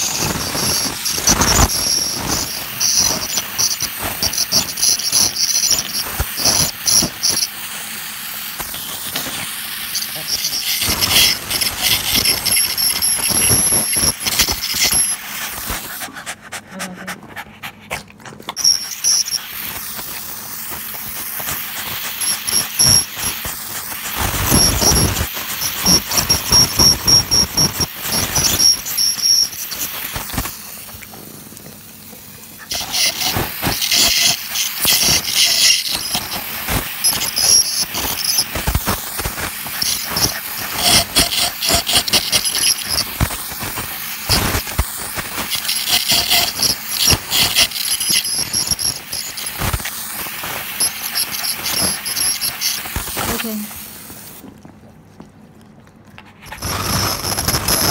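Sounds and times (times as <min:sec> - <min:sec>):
high-pitched whine: 0:00.0 - 0:07.6
water spray hiss: 0:00.0 - 0:16.0, 0:18.7 - 0:30.9, 0:32.7 - 0:54.4
scraping clicks on teeth: 0:00.2 - 0:07.5, 0:08.6 - 0:19.2, 0:32.6 - 0:53.5.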